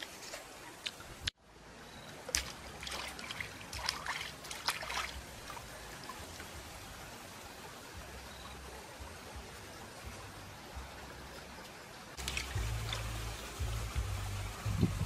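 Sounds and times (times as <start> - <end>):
stream trickling over stones: 0.0 - 15.0
splashing and sloshing water: 2.0 - 8.0, 11.4 - 14.3.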